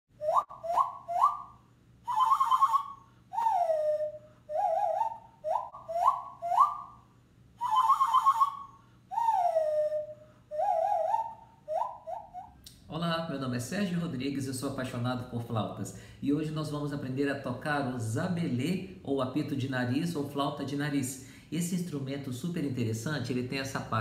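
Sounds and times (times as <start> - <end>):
breathy nose flute whistle: 0.2 - 7.0, 7.6 - 12.6.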